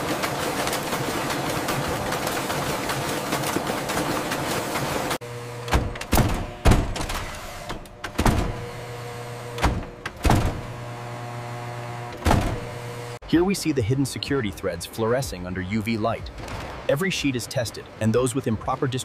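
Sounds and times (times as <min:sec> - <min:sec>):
busy machine noise: 0:00.0 - 0:19.0
heavy mechanical thunks: 0:05.6 - 0:10.9, 0:12.1 - 0:12.9.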